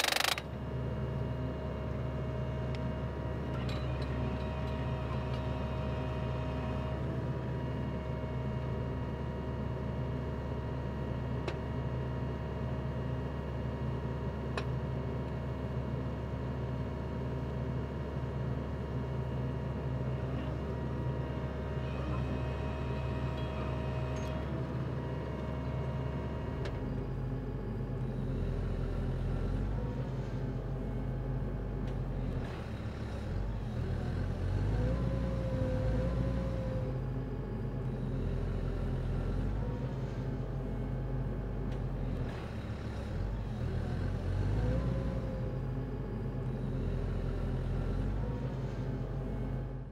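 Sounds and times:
drill rig engine and hydraulics: 0.0s - 0.8s.

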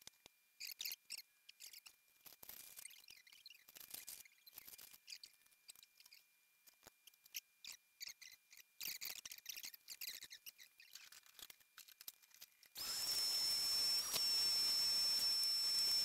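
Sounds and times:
faint clicks and metallic rattles: 0.0s - 12.8s
vacuum cleaner running: 12.8s - 16.0s.

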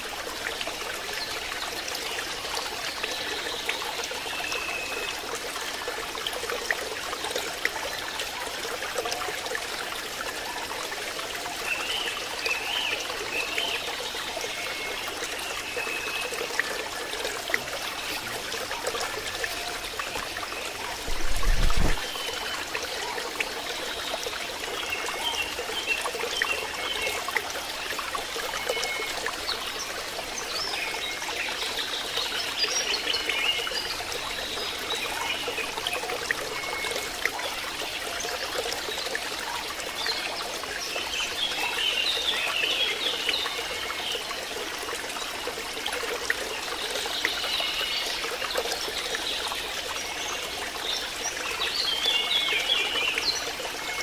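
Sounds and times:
trickle of running water: 0.0s - 54.0s.

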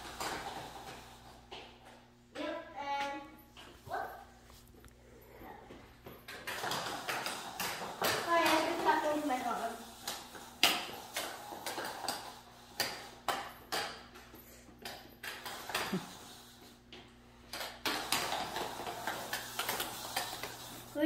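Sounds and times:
footsteps on tile floor: 3.3s - 21.0s
wheeled sneakers clicking on tile: 5.4s - 21.0s.

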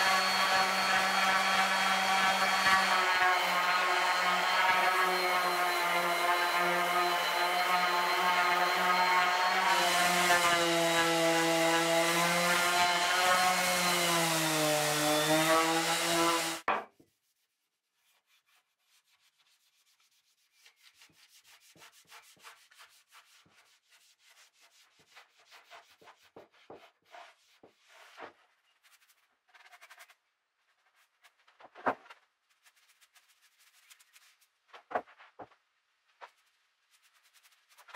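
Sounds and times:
orbital sander humming: 0.0s - 16.6s
quick rubbing strokes: 32.4s - 35.3s, 36.2s - 37.9s.

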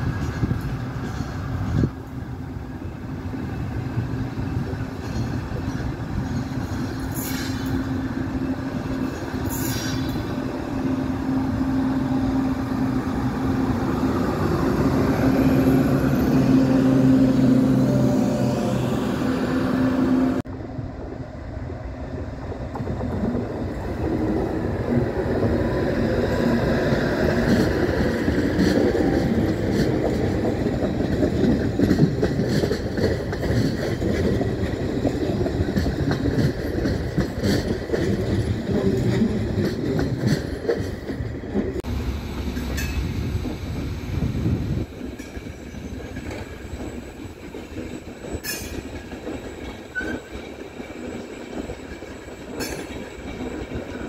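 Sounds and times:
train rumbling past: 0.0s - 54.0s
wheels clattering over rail joints: 22.7s - 41.8s, 45.1s - 54.0s
wheel squeal: 47.8s - 50.5s.

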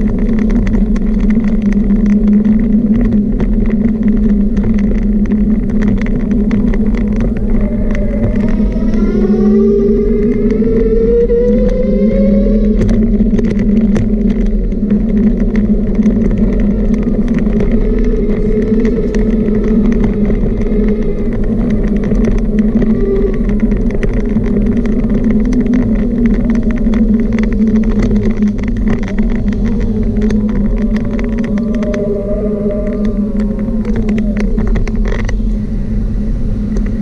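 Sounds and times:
rattling clicks from bumps: 0.0s - 35.6s
small motor whining: 6.3s - 13.3s.

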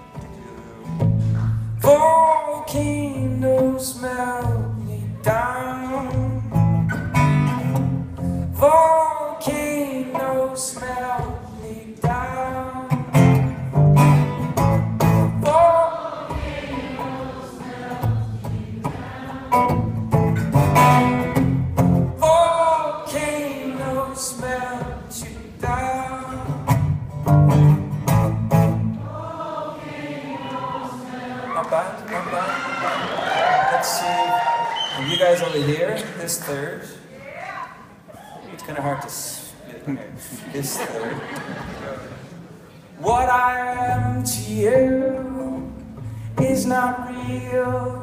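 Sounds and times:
strummed acoustic guitar: 0.0s - 30.1s, 43.0s - 48.0s
man singing: 1.8s - 6.7s, 8.6s - 13.3s, 15.4s - 16.1s, 22.2s - 26.8s, 43.0s - 48.0s.

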